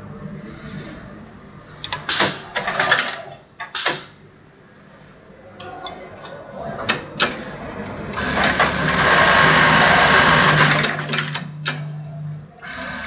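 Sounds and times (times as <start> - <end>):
sewing machine humming: 7.4 - 13.0.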